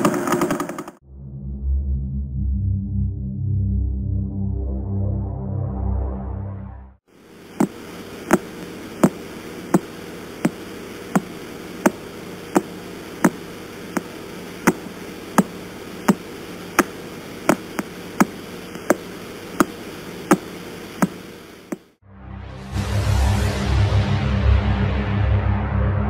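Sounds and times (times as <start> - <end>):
static hiss: 7.1 - 22.0
sharp radio clicks: 7.5 - 21.9.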